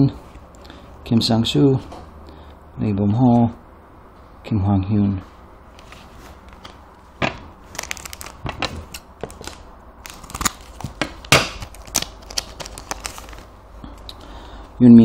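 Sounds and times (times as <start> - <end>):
foil wrapper tearing and crinkling: 7.6 - 13.5.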